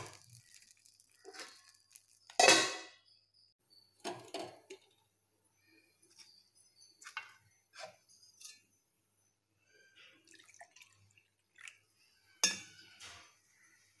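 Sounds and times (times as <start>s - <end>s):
steel kitchenware clinking: 1.2s - 3.1s, 6.0s - 9.3s, 12.3s - 14.0s
liquid pouring into cup: 10.3s - 11.9s.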